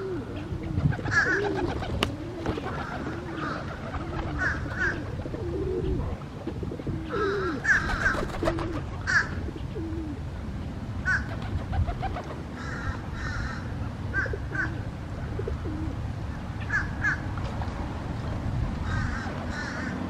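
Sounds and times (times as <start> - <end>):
pigeons cooing: 0.0 - 10.3, 11.0 - 17.6, 18.8 - 20.0.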